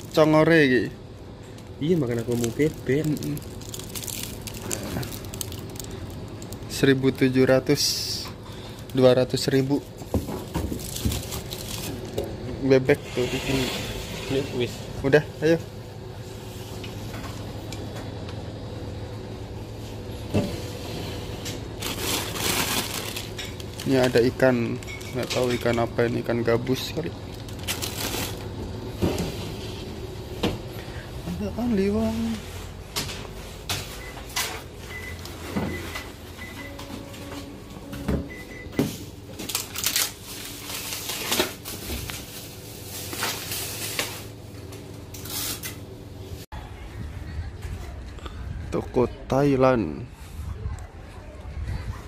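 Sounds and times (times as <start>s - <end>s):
low mechanical hum: 0.0s - 52.0s
crinkling rustles: 1.5s - 12.2s, 21.5s - 29.9s, 39.3s - 45.8s.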